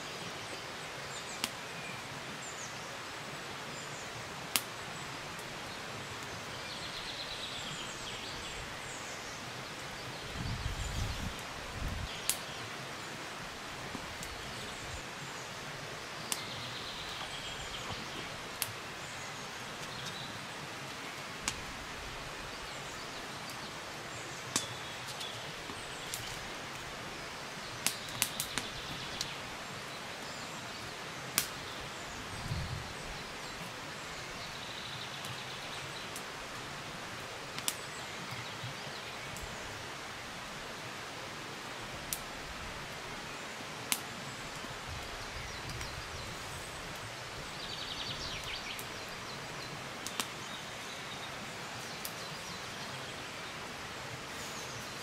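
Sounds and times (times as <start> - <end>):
steady hiss: 0.0 - 55.0
birds chirping: 14.1 - 21.8, 44.3 - 55.0.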